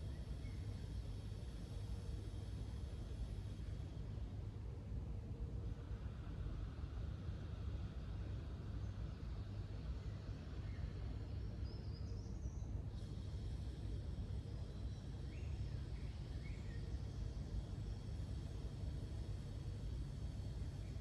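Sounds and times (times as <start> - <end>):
faint high hiss: 0.0 - 21.0
faint bird chirps: 10.0 - 18.7.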